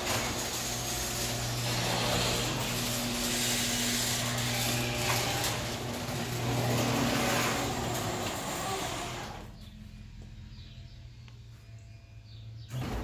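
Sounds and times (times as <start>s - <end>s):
door rollers rattling: 0.0s - 9.5s
garage door opener motor hum: 0.0s - 11.0s.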